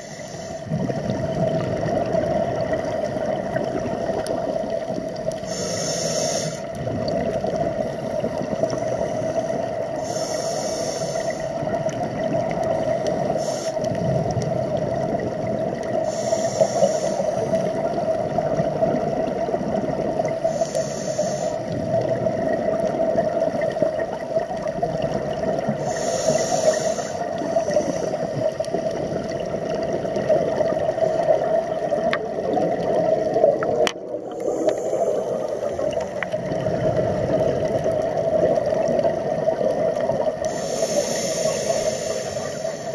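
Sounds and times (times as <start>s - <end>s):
regulator breath hissing: 0.0s - 0.8s, 5.3s - 6.8s, 8.7s - 11.7s, 13.1s - 14.0s, 15.9s - 17.9s, 20.3s - 21.8s, 25.8s - 28.7s, 34.1s - 36.3s, 40.4s - 42.9s
muffled underwater water rush: 0.0s - 42.9s.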